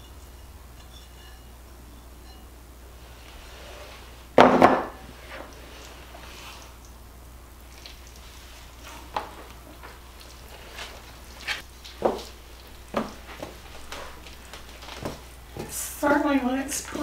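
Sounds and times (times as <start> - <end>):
faint steady hum: 0.0 - 17.0
spoon knocking and scraping bowl: 0.1 - 1.6
wet mixture squelching: 5.1 - 16.3.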